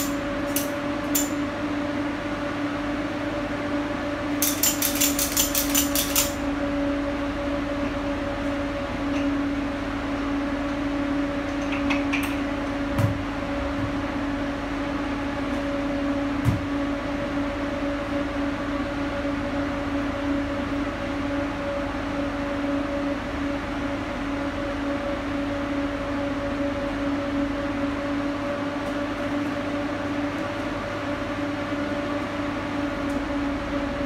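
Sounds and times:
steady mechanical hum: 0.0s - 34.0s
ratchet strap clicking: 4.4s - 6.4s.

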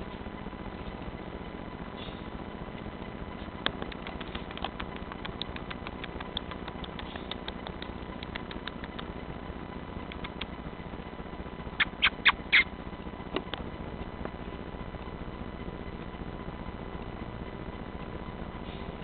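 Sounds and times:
squirrel chattering chirps: 11.8s - 12.7s.

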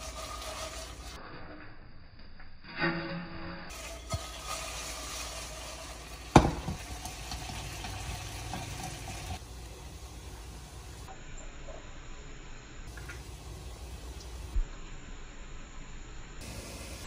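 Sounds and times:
food sizzling in a pan: 0.0s - 1.2s, 3.7s - 11.1s, 16.4s - 17.0s.

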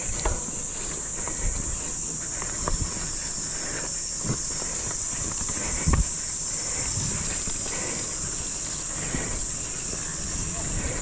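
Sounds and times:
sharp knocks of bike on bumps: 0.0s - 3.2s
bike tyre and drivetrain rumble: 0.0s - 11.0s
steady high-pitched hiss: 0.0s - 11.0s.

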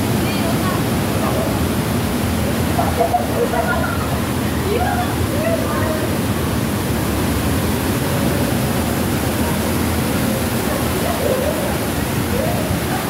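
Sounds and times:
running water rushing: 0.0s - 13.0s.

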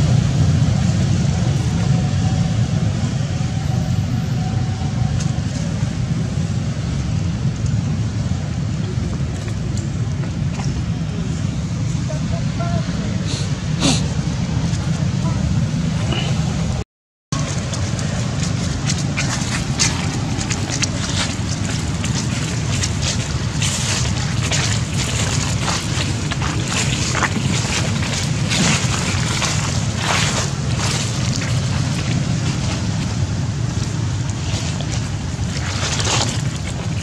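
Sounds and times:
crackles and rustles: 17.4s - 37.0s.

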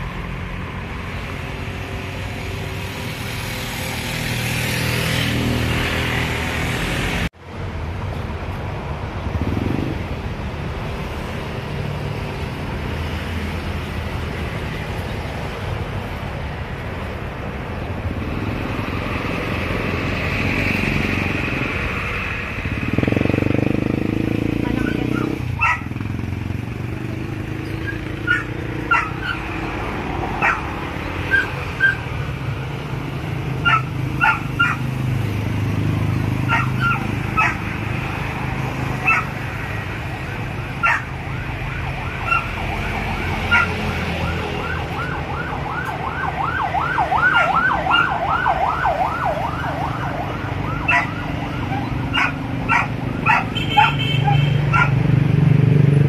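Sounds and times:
dog barking: 24.8s - 26.0s, 27.8s - 29.5s, 30.4s - 30.7s, 31.3s - 32.1s, 33.6s - 34.9s, 36.4s - 37.7s, 39.0s - 39.4s, 40.8s - 41.1s, 42.2s - 42.5s, 43.5s - 43.8s, 47.3s - 48.1s, 50.9s - 55.1s
warbling siren-like wail: 39.8s - 53.5s.

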